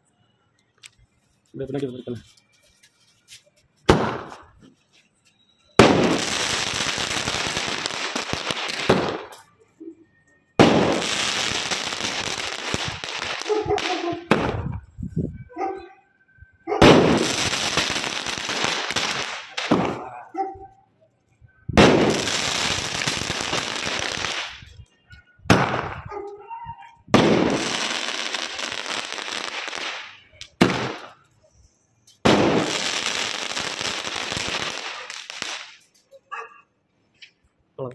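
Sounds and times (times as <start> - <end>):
firework cracks: 3.9 - 4.6, 5.8 - 9.6, 10.6 - 14.8, 16.8 - 20.2, 21.8 - 24.8, 25.5 - 26.0, 27.1 - 31.3, 32.1 - 36.1.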